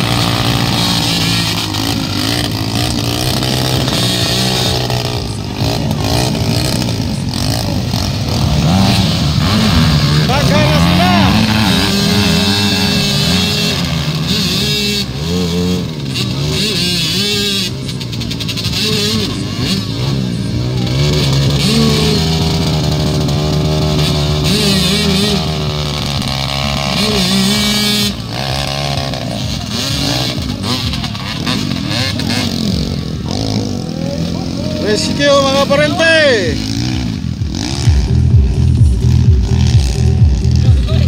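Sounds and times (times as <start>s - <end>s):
rear wheels spinning in mud: 0.0s - 14.1s
dirt bike engines revving: 0.0s - 41.0s.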